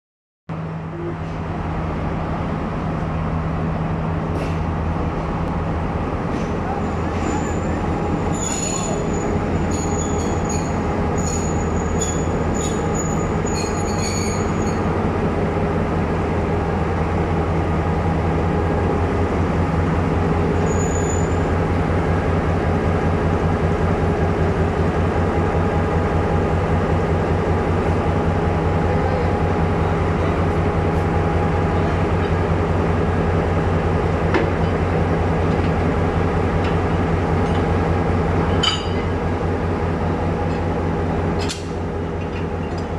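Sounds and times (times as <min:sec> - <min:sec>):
diesel locomotive engine drone: 0:00.5 - 0:42.9
short high squeaks: 0:06.9 - 0:14.9, 0:20.6 - 0:21.5.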